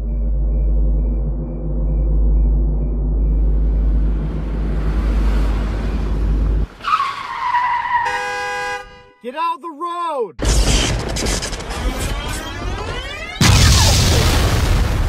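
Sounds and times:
sports car engine rumbling: 0:00.0 - 0:06.7
tire screech: 0:04.8 - 0:08.8
horn-like tone: 0:08.0 - 0:09.2.

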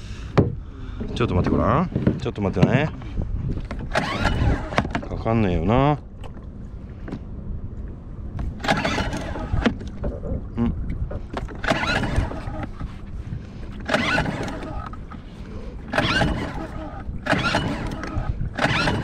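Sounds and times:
outboard engine recoil starter pulls: 0:00.9 - 0:06.4, 0:08.4 - 0:10.4, 0:11.1 - 0:19.0.

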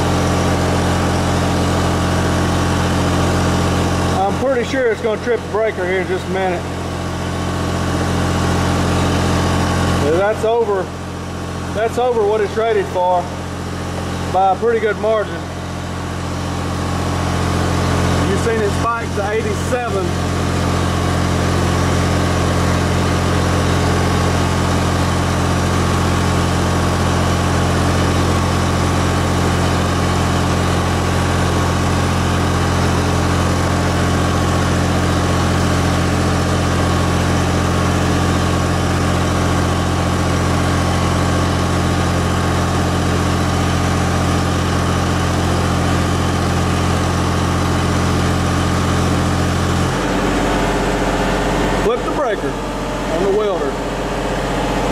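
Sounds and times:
diesel engine under heavy load: 0:00.0 - 0:54.9.

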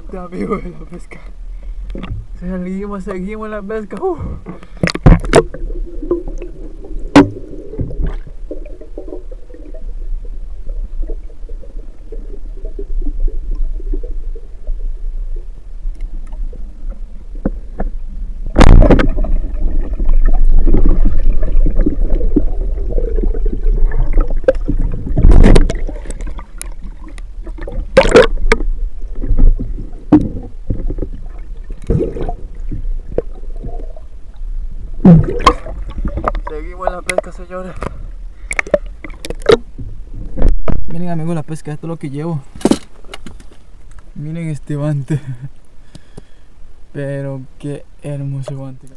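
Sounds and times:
underwater rumble of moving water: 0:00.0 - 0:48.9.

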